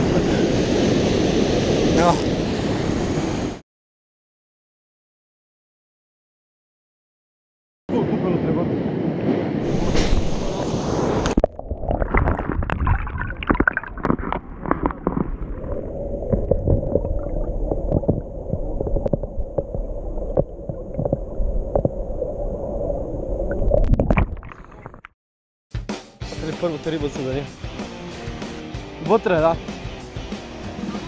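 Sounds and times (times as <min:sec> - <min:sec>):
water rushing above surface: 0:09.2 - 0:25.0
low underwater rumble: 0:09.6 - 0:24.8
bubble clicks and knocks: 0:11.4 - 0:15.5, 0:16.3 - 0:22.0.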